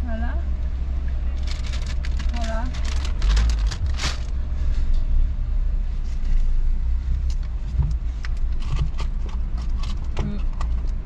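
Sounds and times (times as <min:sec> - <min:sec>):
car engine idling: 0:00.0 - 0:11.0
paper bag and cup crackling: 0:01.4 - 0:04.4.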